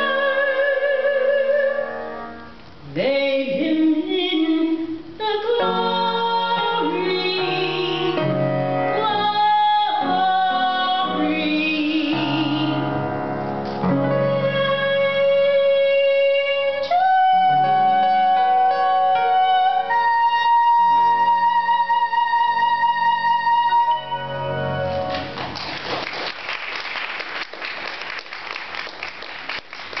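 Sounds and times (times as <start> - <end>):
audience applause: 25.1 - 30.0.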